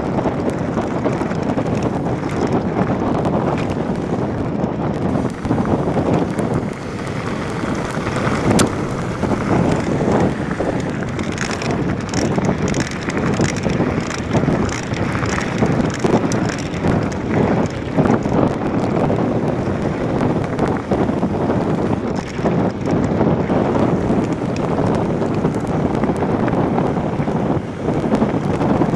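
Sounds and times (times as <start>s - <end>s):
bike tyres rumbling on gravel: 0.0s - 28.9s
wind buffeting microphone: 0.0s - 28.9s
stones knocking and clattering: 5.0s - 19.0s.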